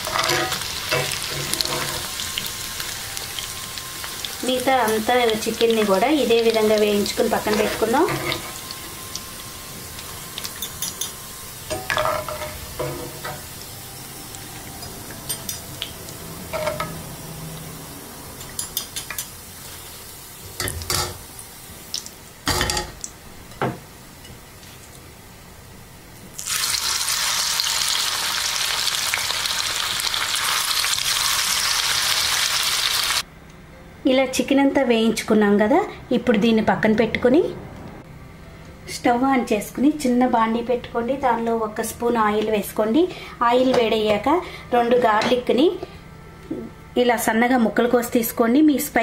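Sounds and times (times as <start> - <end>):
loud sizzle of frying chicken: 0.0 - 23.2, 26.2 - 33.3.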